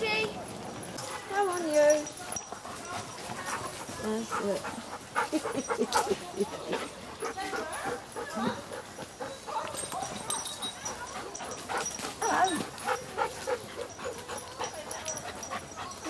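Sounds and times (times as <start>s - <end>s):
dogs whining and yipping: 5.1s - 16.0s.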